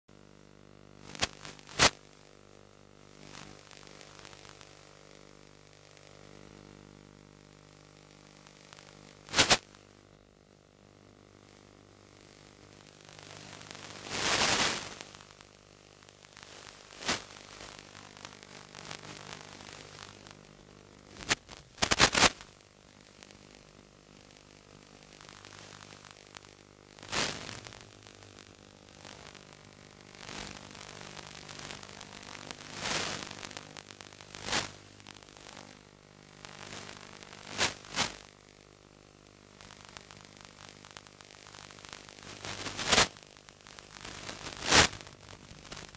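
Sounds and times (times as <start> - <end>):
radio static hiss: 0.1 - 45.9
static crackling bursts: 0.1 - 45.9.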